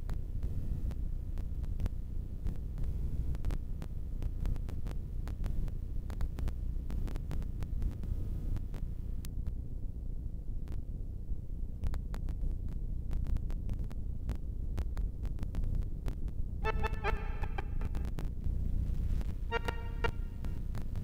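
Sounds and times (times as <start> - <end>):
sharp clicks and crackles: 0.0 - 9.6, 10.6 - 10.9, 11.7 - 16.5, 17.8 - 19.4
low rumbling hum: 0.0 - 21.0.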